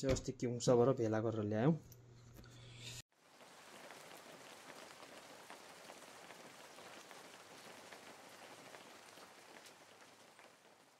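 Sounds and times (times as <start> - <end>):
light rain pattering: 3.1 - 10.9.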